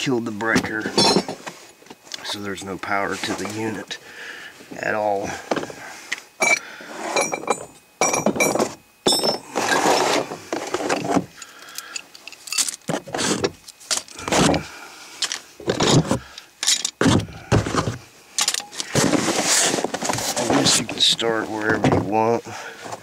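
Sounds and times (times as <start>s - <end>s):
hand tools knocking and scraping: 0.5s - 1.5s, 15.6s - 22.2s.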